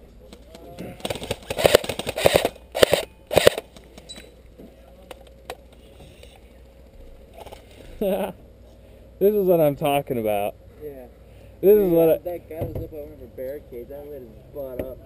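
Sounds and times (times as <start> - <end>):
airsoft gun firing bursts: 1.0 - 3.8.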